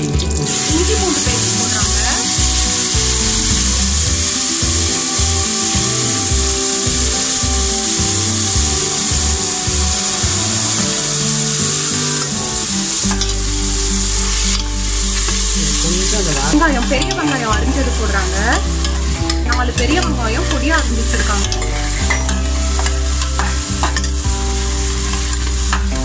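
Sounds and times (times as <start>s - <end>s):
background music: 0.0s - 26.0s
paste sizzling in hot oil: 0.0s - 26.0s
spoon stirring: 13.0s - 25.9s.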